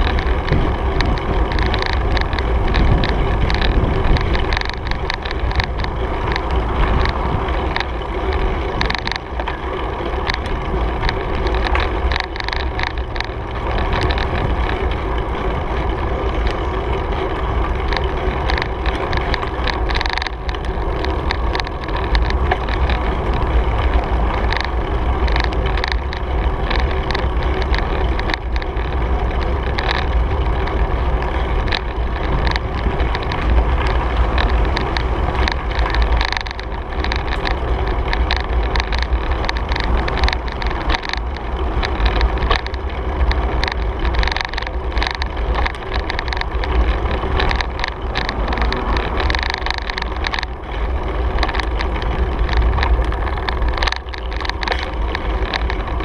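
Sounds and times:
bicycle rattles and clicks: 0:00.0 - 0:56.0
bicycle tyres on pavement: 0:00.0 - 0:56.0
wind on microphone: 0:00.0 - 0:56.0.

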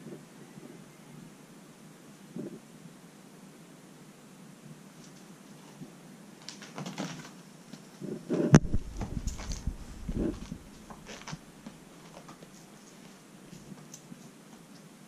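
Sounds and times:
kitten scuffs and rustles: 0:08.6 - 0:14.8.

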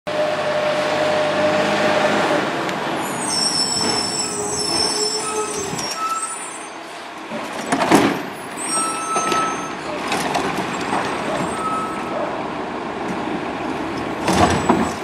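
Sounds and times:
garbage truck diesel engine: 0:00.1 - 0:15.0
high-pitched squeal: 0:03.0 - 0:06.8, 0:08.5 - 0:10.0.

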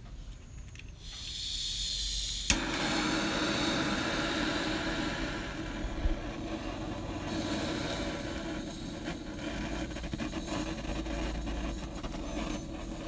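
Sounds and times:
flame burning: 0:01.0 - 0:13.0
gas hissing from torch: 0:01.0 - 0:13.0
igniter click: 0:02.4 - 0:09.1.

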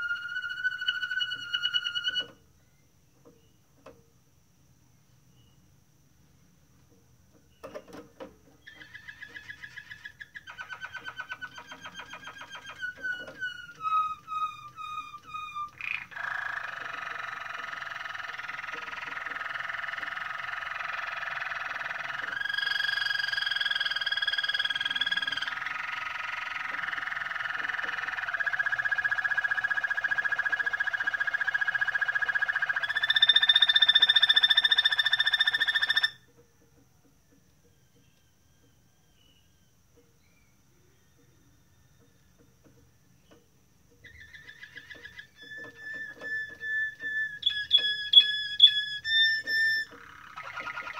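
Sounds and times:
canary singing: 0:00.0 - 0:02.5, 0:08.6 - 0:36.4, 0:37.4 - 0:50.9.

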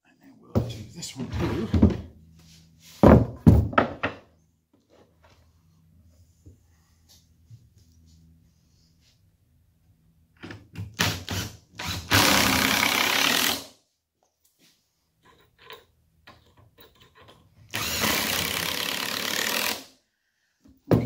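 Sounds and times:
cordless drill driving screws: 0:11.0 - 0:13.7, 0:17.7 - 0:19.9.

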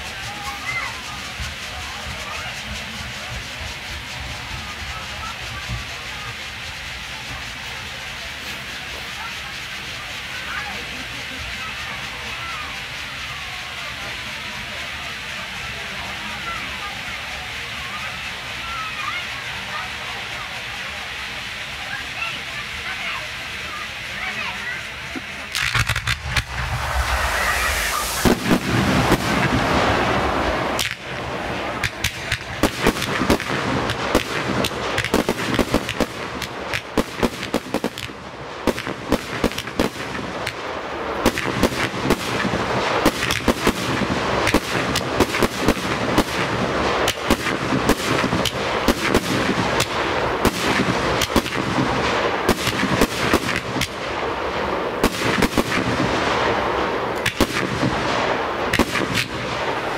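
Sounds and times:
fireworks bursting: 0:00.0 - 0:59.9
hissing rush of fireworks: 0:00.0 - 0:59.9.

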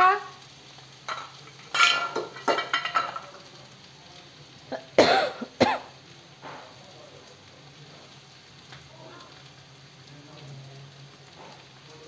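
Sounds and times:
person coughing: 0:04.8 - 0:05.9.

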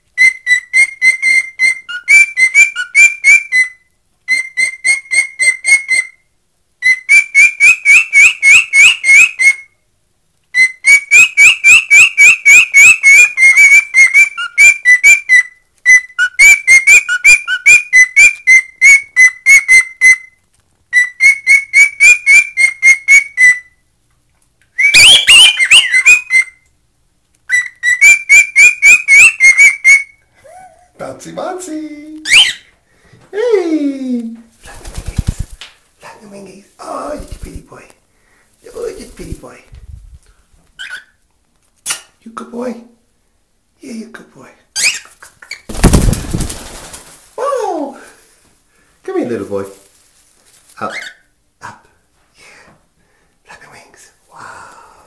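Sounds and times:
cockatiel whistling song: 0:00.2 - 0:06.2, 0:06.8 - 0:09.8, 0:10.5 - 0:23.8, 0:24.7 - 0:26.7, 0:27.5 - 0:30.2, 0:32.2 - 0:32.7, 0:40.8 - 0:41.2, 0:44.8 - 0:45.7.

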